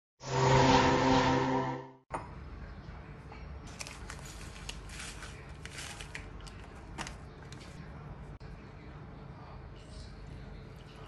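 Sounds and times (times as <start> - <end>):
foil sachet crinkling: 3.7 - 7.2.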